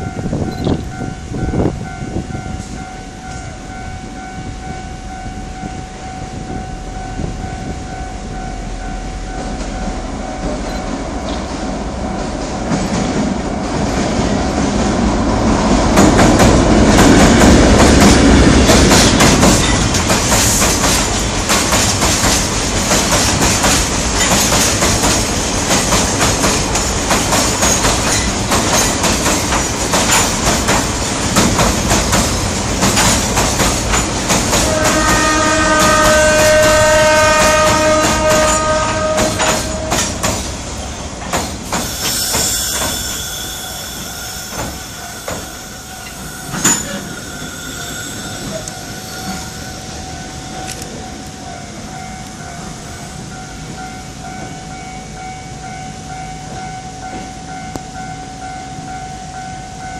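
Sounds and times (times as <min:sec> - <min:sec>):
diesel locomotive rumbling: 0:00.0 - 0:59.9
train wheels clickety-clack: 0:09.4 - 0:49.8.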